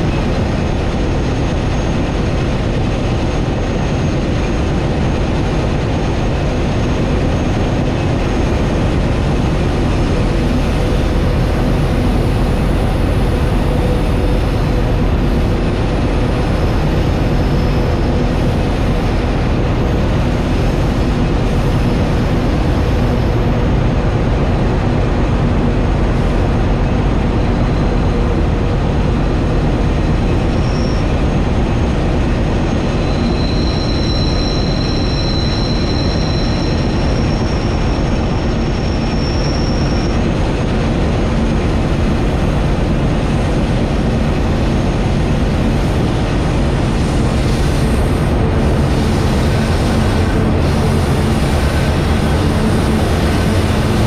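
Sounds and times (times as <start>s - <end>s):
diesel locomotive engine drone: 0.0s - 54.0s
wheel and rail rumble: 0.0s - 54.0s
high wheel flange squeal: 30.6s - 31.2s, 32.6s - 40.3s.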